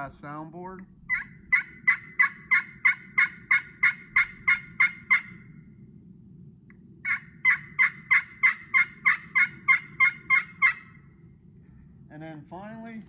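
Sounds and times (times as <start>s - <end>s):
turkey call high-pitched yelps: 1.1s - 5.4s, 7.0s - 11.1s.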